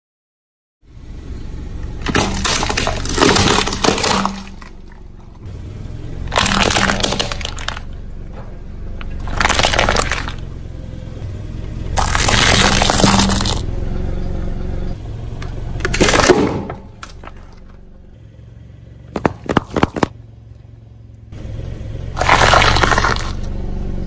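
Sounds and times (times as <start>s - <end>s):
tyre crushing brittle objects: 2.0s - 4.7s, 6.3s - 7.9s, 9.1s - 10.4s, 11.9s - 13.6s, 22.2s - 23.5s.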